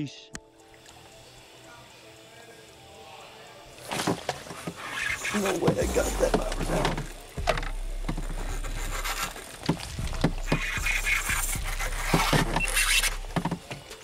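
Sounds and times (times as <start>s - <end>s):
fishing reel clicking and grinding: 10.4s - 13.3s.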